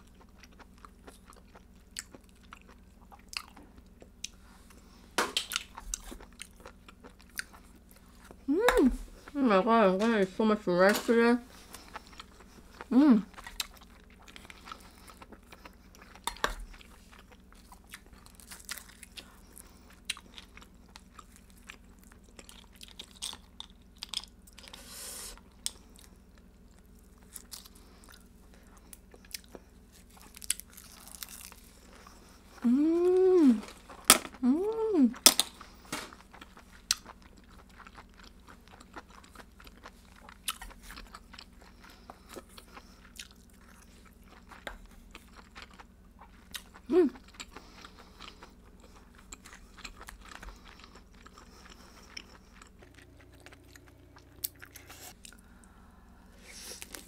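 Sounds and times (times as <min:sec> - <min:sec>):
person chewing and crunching: 0:00.0 - 0:09.5, 0:11.5 - 0:55.8, 0:56.5 - 0:57.0
person humming mm: 0:08.5 - 0:09.1, 0:32.6 - 0:33.7, 0:34.4 - 0:35.2, 0:46.9 - 0:47.2.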